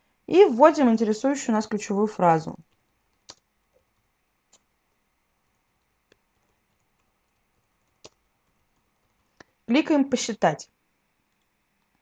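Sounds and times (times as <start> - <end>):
faint clicks: 2.8 - 3.9.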